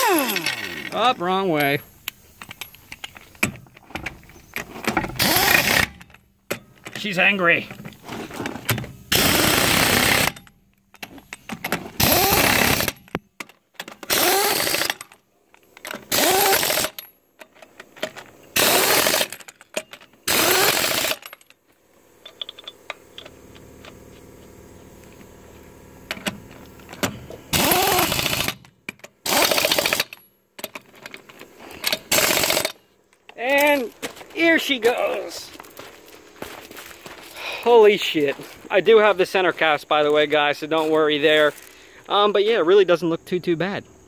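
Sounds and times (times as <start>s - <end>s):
pneumatic impact wrench hammering: 0.0s - 1.0s, 1.6s - 7.1s, 7.7s - 15.2s, 15.8s - 21.5s, 26.1s - 32.8s.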